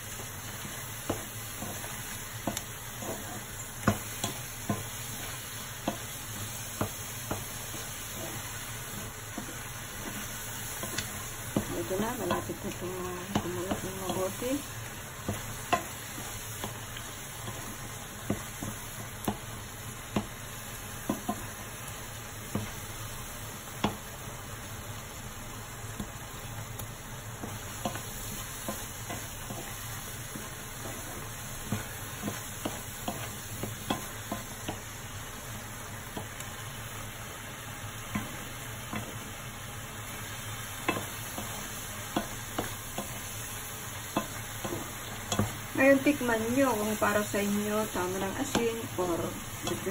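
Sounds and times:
food sizzling in a pan: 0:00.0 - 0:49.9
spoon knocking and scraping pan: 0:00.2 - 0:14.5, 0:15.2 - 0:19.5, 0:20.1 - 0:20.4, 0:21.0 - 0:21.5, 0:27.4 - 0:34.9, 0:38.1 - 0:39.3, 0:40.7 - 0:49.9.

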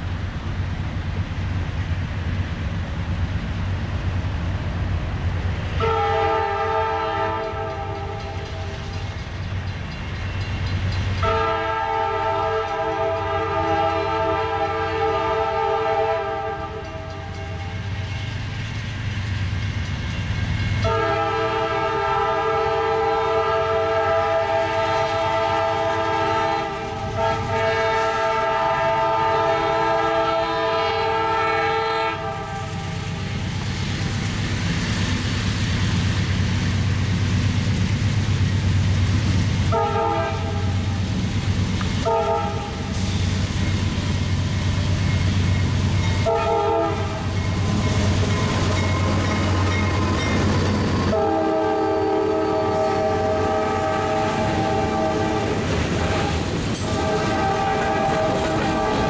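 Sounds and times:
locomotive air horn blasts: 0:05.8 - 0:08.7, 0:11.2 - 0:17.8, 0:20.8 - 0:32.8, 0:39.7 - 0:40.9, 0:42.0 - 0:43.0, 0:46.2 - 0:47.4, 0:50.8 - 0:59.0.

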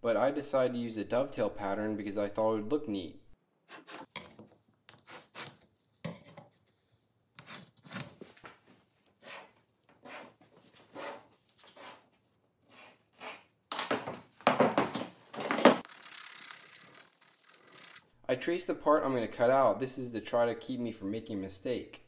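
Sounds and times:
pencil scratching on plywood: 0:03.7 - 0:04.1, 0:09.2 - 0:12.1.

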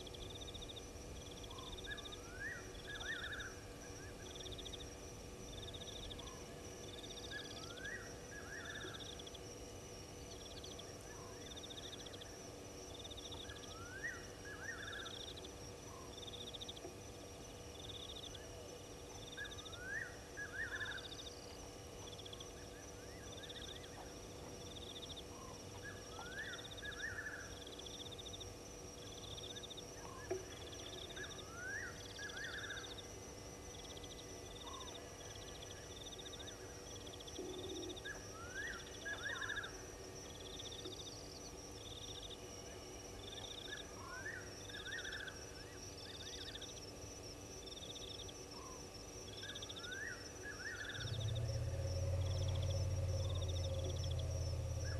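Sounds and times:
high-pitched insect trill: 0:00.0 - 0:54.9
pulsed chirping: 0:49.4 - 0:54.9.

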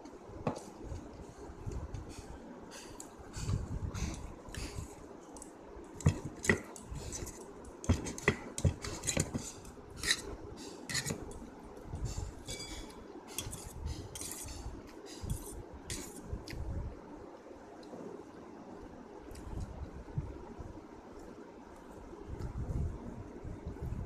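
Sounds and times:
fork scraping a steel plate: 0:07.0 - 0:10.3, 0:10.9 - 0:11.3, 0:12.2 - 0:16.2.

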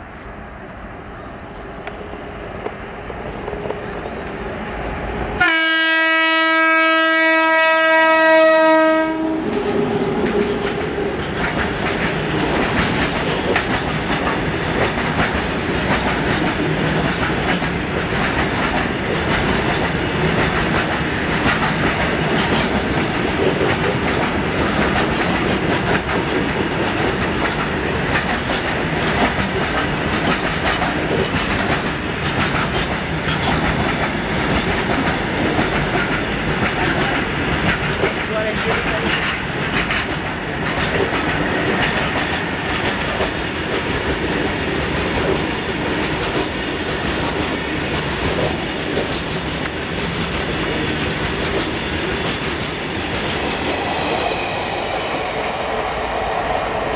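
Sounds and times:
locomotive horn blast: 0:05.4 - 0:09.5
wheels clicking on rails: 0:09.4 - 0:54.1.

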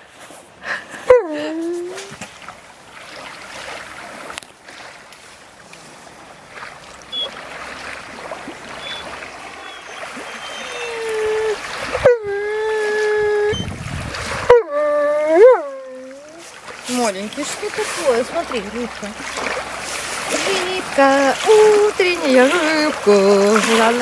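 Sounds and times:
small waves lapping: 0:00.0 - 0:24.0
dog whining: 0:08.8 - 0:13.7.

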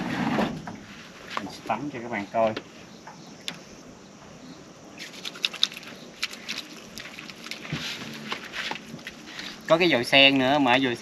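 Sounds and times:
poured water splashing: 0:05.0 - 0:09.8.

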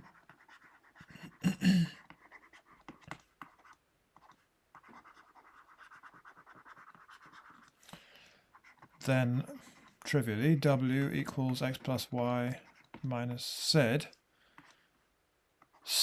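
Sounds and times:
stylus scratching on tablet: 0:00.0 - 0:07.8, 0:08.5 - 0:13.6, 0:15.6 - 0:16.0
person murmuring: 0:01.1 - 0:02.0.

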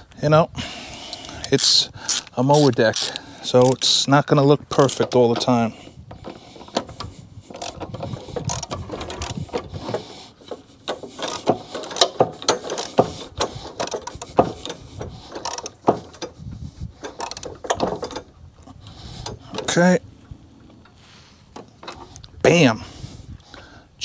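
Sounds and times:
socket ratchet wrench clicking: 0:01.1 - 0:04.0.

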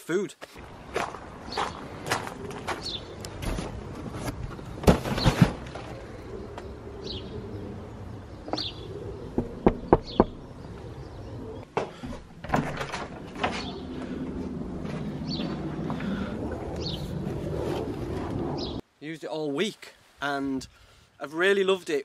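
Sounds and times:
loud thumps: 0:09.3 - 0:10.4.

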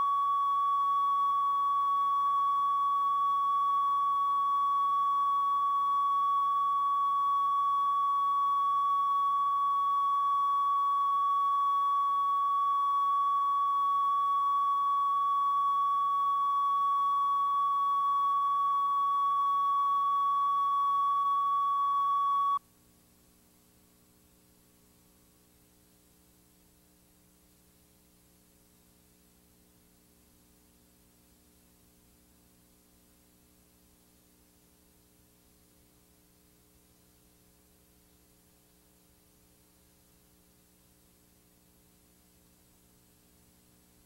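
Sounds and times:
steady test tone: 0:00.0 - 0:22.6
tape hiss: 0:00.0 - 0:44.0.

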